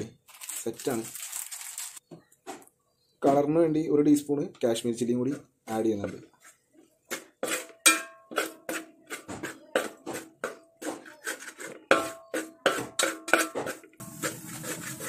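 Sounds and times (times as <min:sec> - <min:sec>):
metal spoon clinking on pot: 0:07.5 - 0:08.8, 0:11.9 - 0:13.8.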